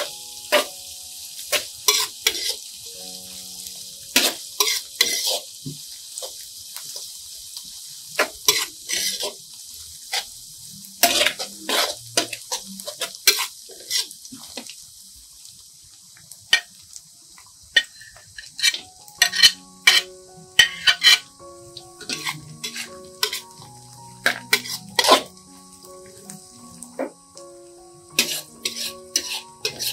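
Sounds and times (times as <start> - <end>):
onions sizzling in oil: 0.0 - 29.9
metal spatula scraping a wok: 1.5 - 2.7, 4.2 - 5.5, 8.2 - 9.4, 11.0 - 14.2, 17.8 - 21.3, 22.0 - 25.3, 28.2 - 29.9.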